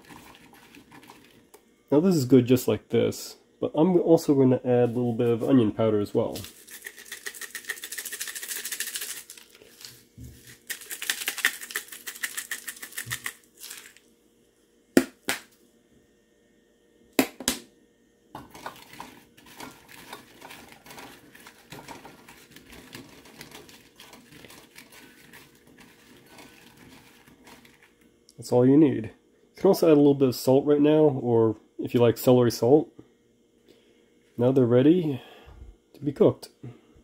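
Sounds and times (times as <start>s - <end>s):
hands tossing food in bowl: 6.3s - 14.0s, 18.4s - 28.0s
spice jar rattling: 6.4s - 14.0s.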